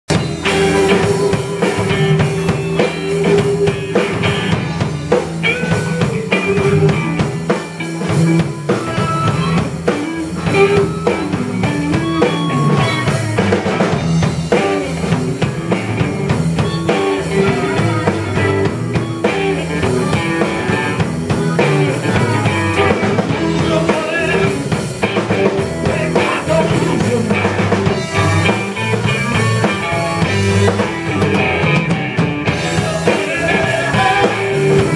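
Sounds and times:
drum kit: 0.1s - 34.9s
electric guitars playing blues: 0.1s - 34.9s.

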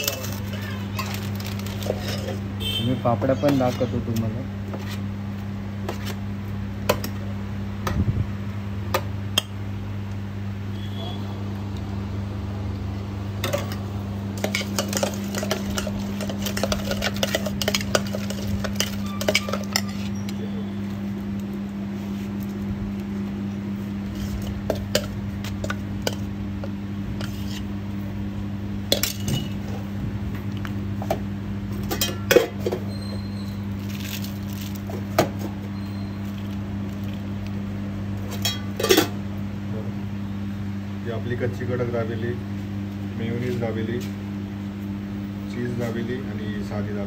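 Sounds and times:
spoons clinking against steel bowl: 0.0s - 2.4s, 14.4s - 20.4s
steady low hum: 0.0s - 47.0s.

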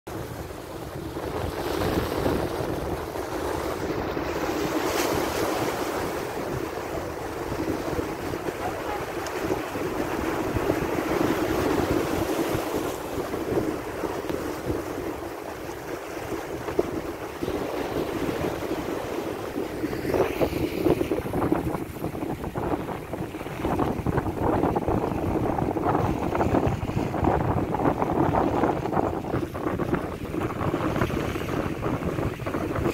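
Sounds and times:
wind buffeting microphone: 0.1s - 32.9s
sea waves splashing on rocks: 1.1s - 19.4s.

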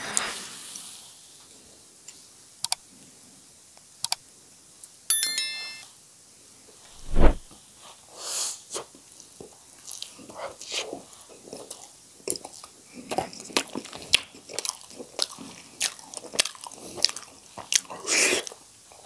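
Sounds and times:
bright chime: 5.1s - 5.8s.

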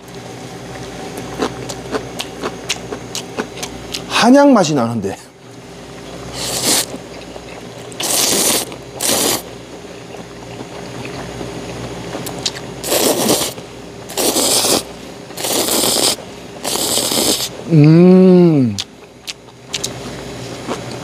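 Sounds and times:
person slurping noodles: 6.3s - 7.0s, 8.0s - 9.5s, 12.8s - 18.8s.

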